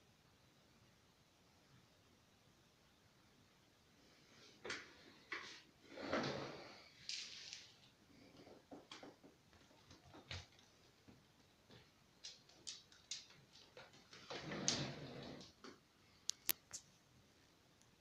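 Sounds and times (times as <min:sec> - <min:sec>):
dog claws clicking on floor: 0:11.7 - 0:14.2.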